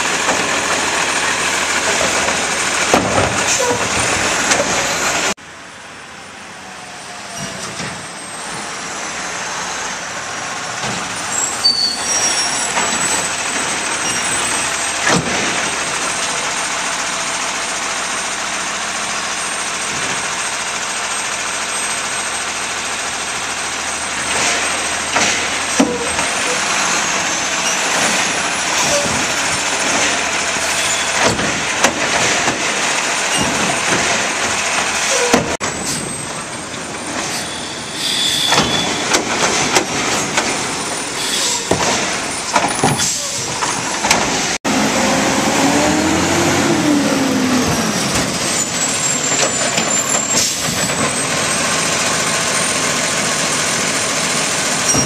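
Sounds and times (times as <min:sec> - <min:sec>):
garbage truck engine running: 0:00.0 - 0:55.0
sharp knocks and clanks: 0:01.8 - 0:05.1, 0:12.6 - 0:16.5, 0:24.2 - 0:37.5, 0:38.4 - 0:44.6.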